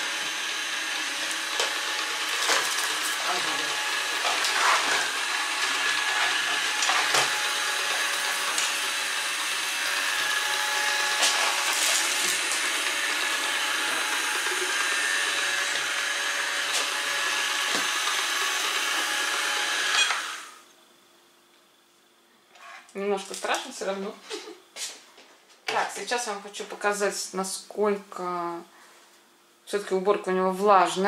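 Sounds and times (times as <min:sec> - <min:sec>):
robot vacuum whirring: 0:00.0 - 0:20.6.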